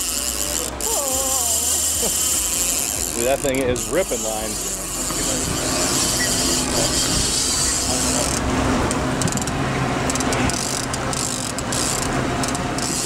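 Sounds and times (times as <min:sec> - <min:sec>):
fishing reel drag clicking: 0:00.0 - 0:08.4, 0:10.1 - 0:13.0
boat engine humming: 0:00.0 - 0:13.0.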